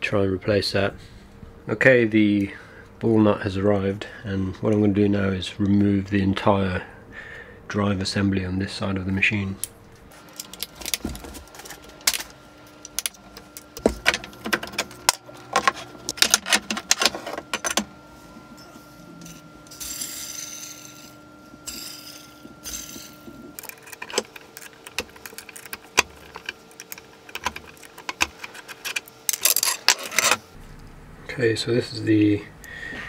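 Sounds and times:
metal tools clinking and knocking: 21.7s - 30.4s.

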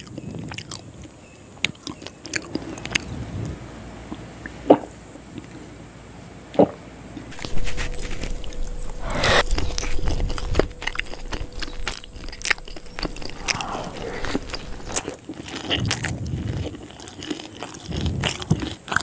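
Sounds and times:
wet chewing: 0.0s - 3.1s, 7.3s - 19.0s
noodles slurping: 7.3s - 19.0s.

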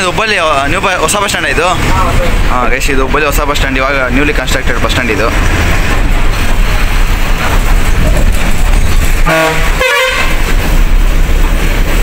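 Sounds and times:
bus engine rumbling: 0.0s - 12.0s
vehicle horn blasts: 9.2s - 10.5s.

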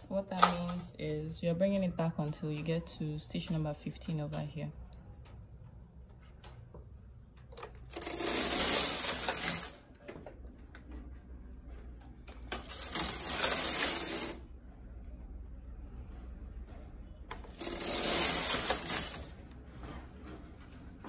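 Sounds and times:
knitting machine carriage clattering: 7.4s - 14.9s, 16.0s - 21.0s.

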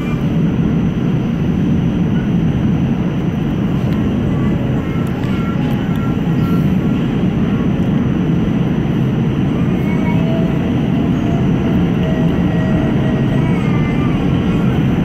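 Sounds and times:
wheels rumbling on rail: 0.0s - 15.0s.

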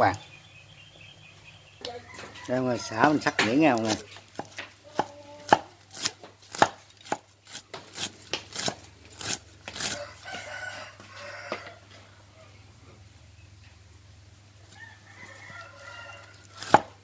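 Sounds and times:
rooster crowing: 1.8s - 3.8s, 9.9s - 12.6s, 14.7s - 16.9s
knife slicing on wooden board: 3.8s - 10.4s.

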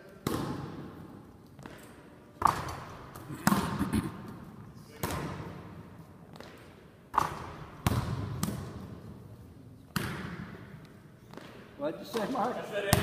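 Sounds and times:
basketball bouncing on hardwood floor: 6.3s - 9.0s.

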